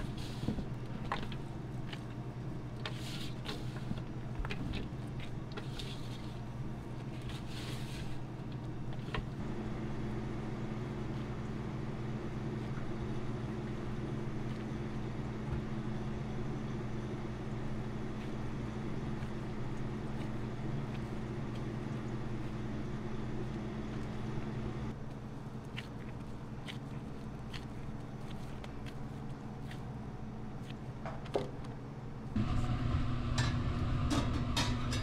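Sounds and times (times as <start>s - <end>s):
electric motor hum: 32.3s - 34.6s.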